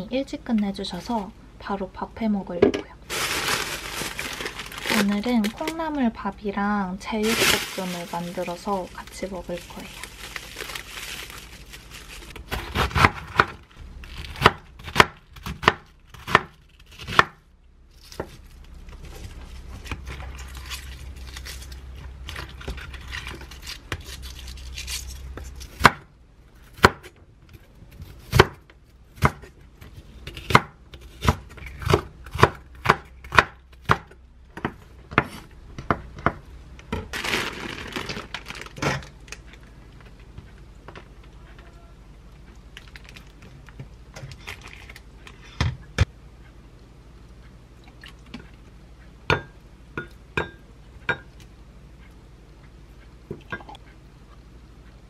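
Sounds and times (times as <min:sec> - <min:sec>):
knife chopping on wooden board: 0:14.4 - 0:17.4.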